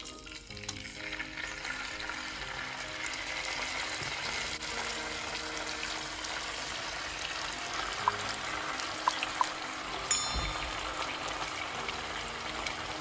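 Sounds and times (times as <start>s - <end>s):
fish sizzling in oil: 0.0s - 13.0s
oil popping: 6.0s - 13.0s.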